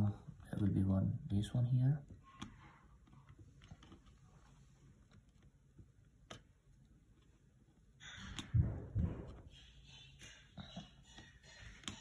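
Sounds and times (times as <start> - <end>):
hand tool clicking and tapping: 10.0 - 12.0.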